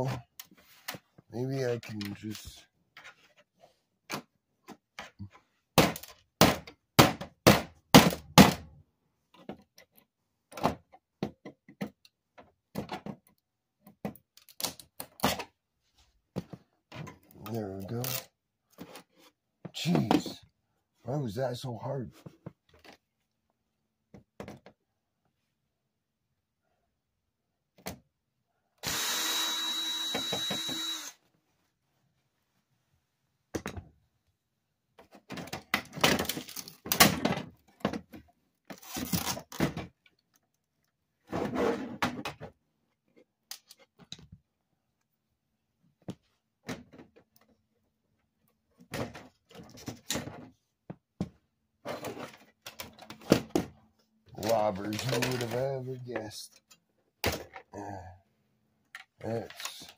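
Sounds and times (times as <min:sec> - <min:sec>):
cordless drill whining: 0:28.8 - 0:31.2.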